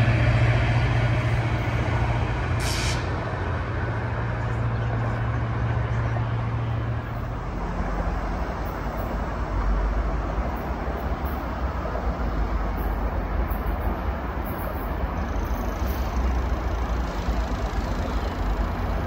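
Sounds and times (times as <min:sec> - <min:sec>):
diesel locomotive humming: 0:00.0 - 0:19.0
air hiss: 0:02.6 - 0:03.1.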